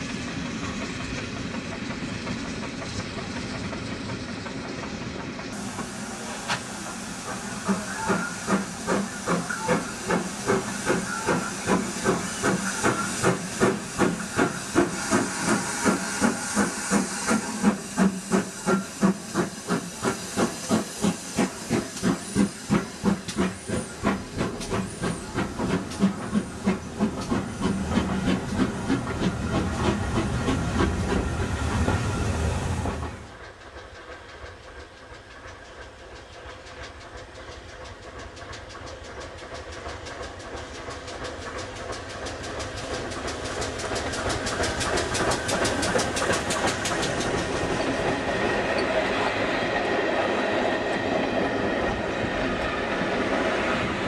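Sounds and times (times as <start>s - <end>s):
steam locomotive exhaust beats: 0.0s - 54.0s
steam train approaching: 0.0s - 54.0s
steam hiss: 5.3s - 35.1s, 38.6s - 54.0s
wheels clacking over rail joints: 32.8s - 51.5s.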